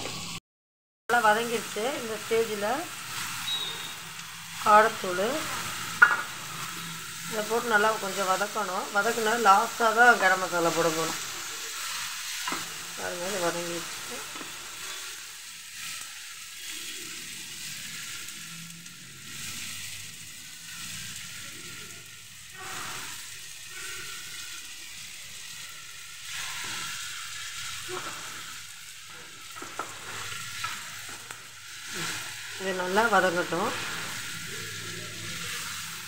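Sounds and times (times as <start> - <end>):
vegetables sizzling in a pan: 0.0 - 0.4, 1.1 - 36.0.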